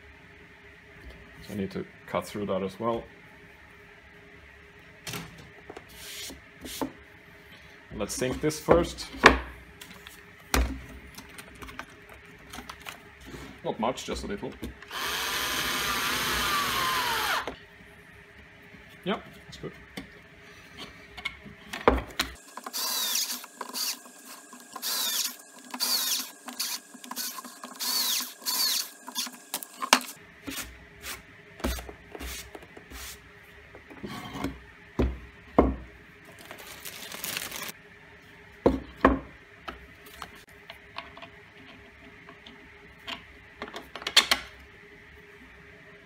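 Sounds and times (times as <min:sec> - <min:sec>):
screws clicking and knocking: 0:24.8 - 0:30.1
plastic bag rustling: 0:36.3 - 0:37.8.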